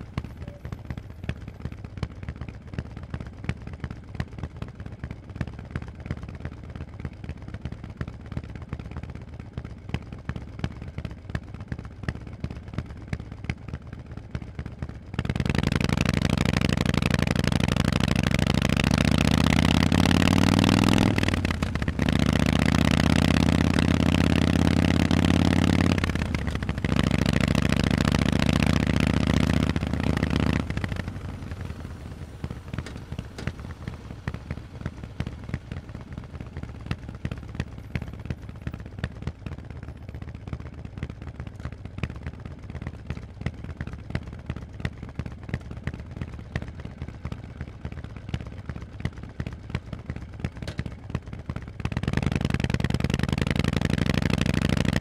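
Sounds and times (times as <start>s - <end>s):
motorcycle engine revving: 15.2s - 39.5s, 51.6s - 55.0s.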